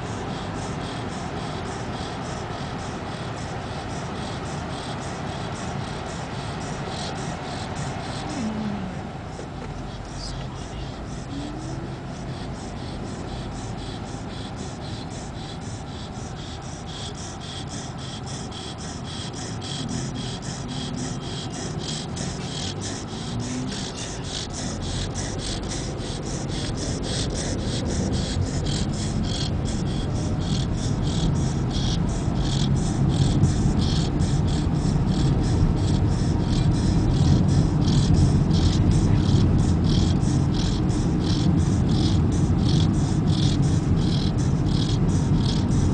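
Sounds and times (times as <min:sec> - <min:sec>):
car road noise: 0:00.0 - 0:45.9
dog snoring: 0:08.1 - 0:08.8, 0:17.0 - 0:45.6.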